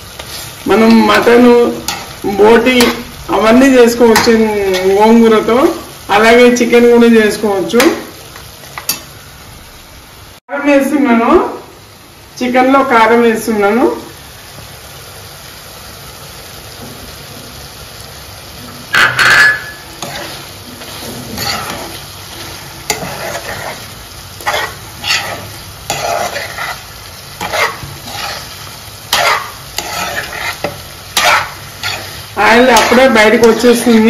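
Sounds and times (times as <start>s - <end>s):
chicken sizzling in a pan: 0.0s - 34.0s
steel spoon scraping a pan: 0.2s - 3.1s, 18.9s - 33.8s.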